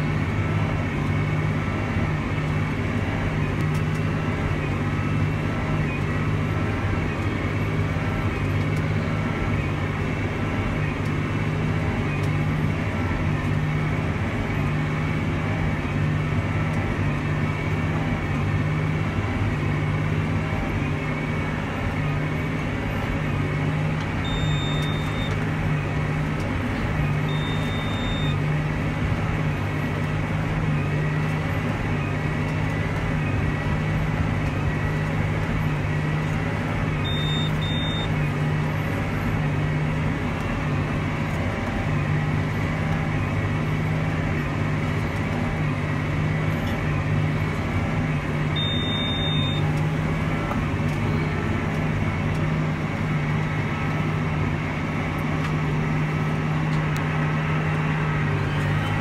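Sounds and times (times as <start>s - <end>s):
tractor diesel engine drone: 0.0s - 59.0s
short high electronic beeps: 24.2s - 25.4s, 27.3s - 28.4s, 37.0s - 38.1s, 48.6s - 49.7s.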